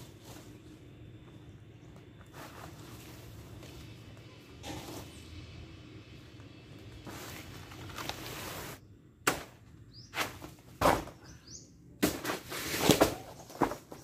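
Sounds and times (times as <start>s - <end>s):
bird chirping: 9.9s - 10.3s, 11.1s - 11.8s.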